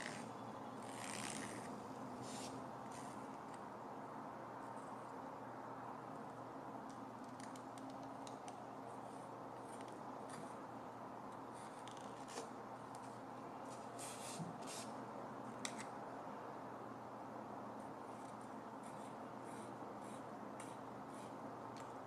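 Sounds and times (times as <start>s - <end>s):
steady background hum: 0.0s - 22.0s.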